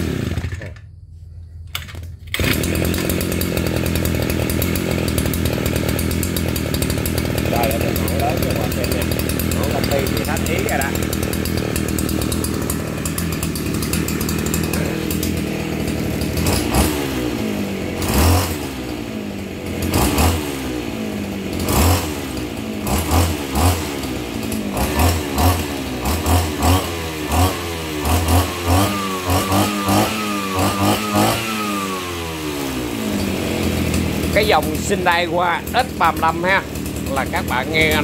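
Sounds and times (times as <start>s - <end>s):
brush cutter engine revving: 0.0s - 0.8s, 2.3s - 38.0s
spinning blade whine: 2.4s - 18.0s.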